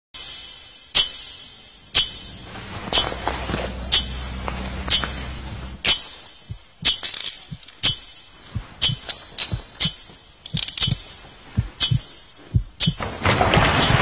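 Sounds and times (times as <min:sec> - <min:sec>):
low hum: 0:00.2 - 0:14.0
sharp metallic clinks: 0:05.8 - 0:13.0.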